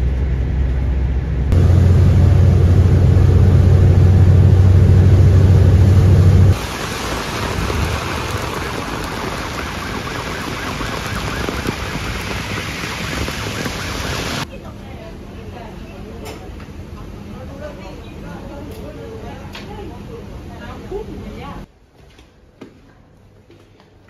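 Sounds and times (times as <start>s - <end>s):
bus engine drone: 0.0s - 14.4s
heavy rain on pavement: 6.3s - 14.5s.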